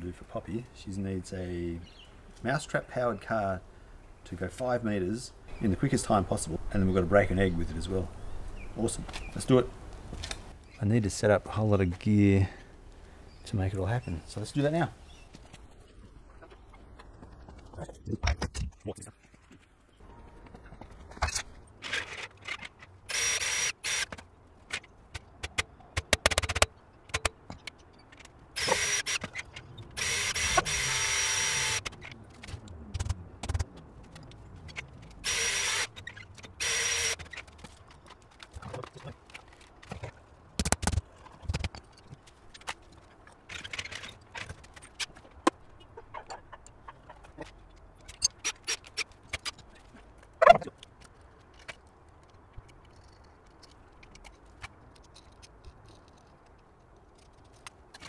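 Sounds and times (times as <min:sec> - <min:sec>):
cordless drill running: 0:23.1 - 0:24.0, 0:28.6 - 0:29.2, 0:30.0 - 0:31.8, 0:35.2 - 0:35.9, 0:36.6 - 0:37.2
clicks and knocks of handling: 0:46.2 - 0:58.0.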